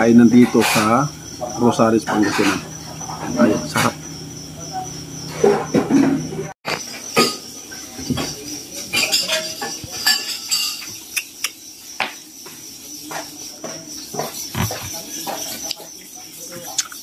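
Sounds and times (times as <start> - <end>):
cutlery clinking on plate: 8.2 - 11.4.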